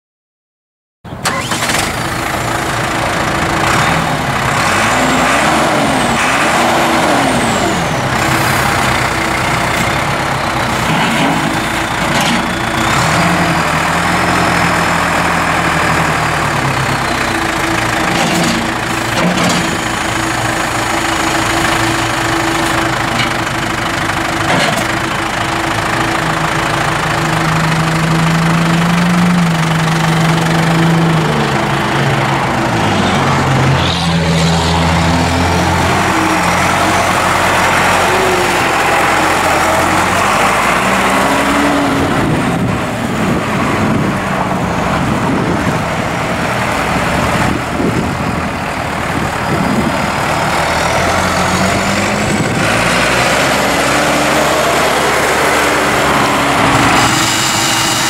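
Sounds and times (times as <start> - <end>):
diesel tractor engine revving: 1.0 - 58.0
clunks: 10.7 - 12.8, 18.0 - 20.0, 24.4 - 25.0.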